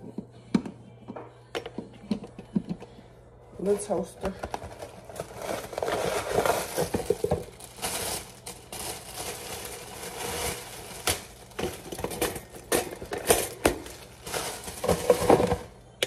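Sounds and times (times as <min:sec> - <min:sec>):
cardboard and plastic crinkling: 0:04.4 - 0:15.8.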